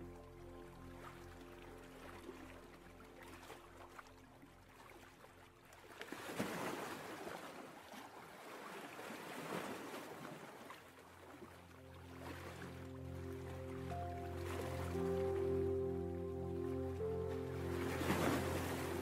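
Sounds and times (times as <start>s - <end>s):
ocean waves washing: 11.3s - 19.0s.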